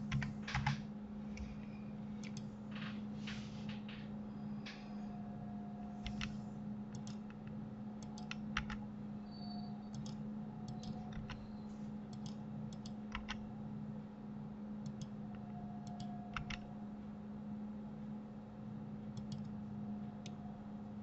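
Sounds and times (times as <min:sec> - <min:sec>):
steady low hum: 0:00.0 - 0:21.0
keyboard and mouse clicks: 0:00.1 - 0:00.8, 0:02.2 - 0:03.0, 0:06.0 - 0:08.8, 0:09.9 - 0:13.4, 0:14.8 - 0:16.7, 0:19.1 - 0:19.6.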